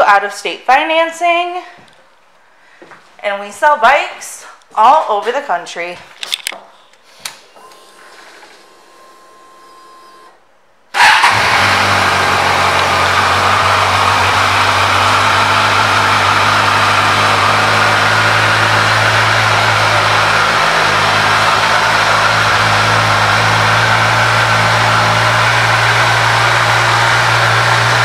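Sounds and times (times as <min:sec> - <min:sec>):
motorcycle engine starting and idling: 0:07.6 - 0:28.0.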